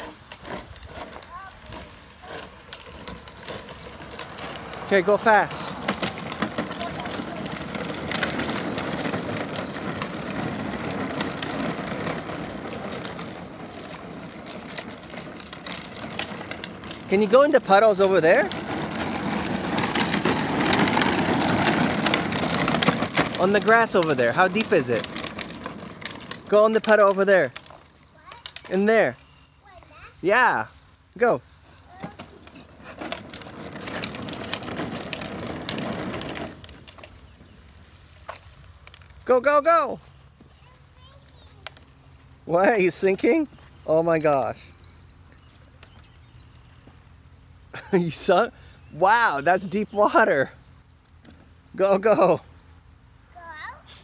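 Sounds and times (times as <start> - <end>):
small clicks and rattles: 0.0 - 29.0, 31.9 - 37.4
plastic wheels rolling on wet asphalt: 0.0 - 54.0.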